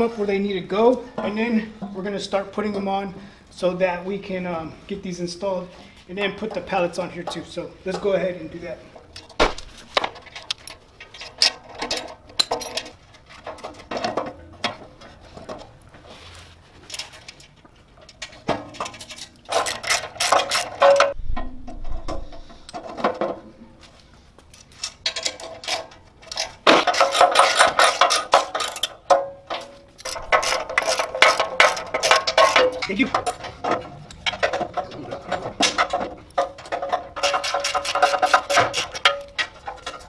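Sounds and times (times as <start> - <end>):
metal clinks of bolts: 10.4 - 12.9, 24.6 - 33.4
socket ratchet clicking: 19.5 - 20.8.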